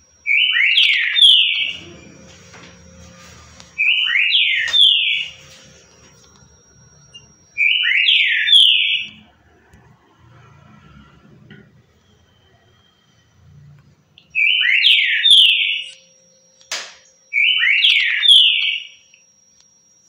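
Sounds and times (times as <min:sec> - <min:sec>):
bird singing slurred notes: 0:07.0 - 0:09.3.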